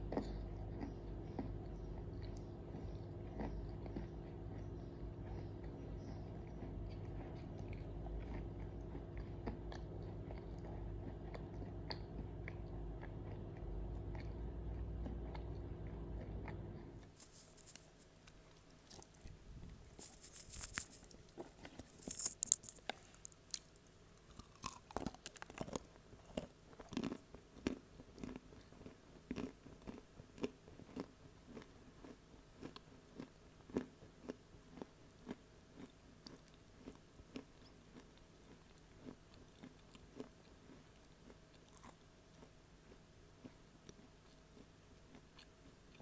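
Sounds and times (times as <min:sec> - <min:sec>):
chewing: 0:00.0 - 0:46.0
crunching clay: 0:18.8 - 0:25.9.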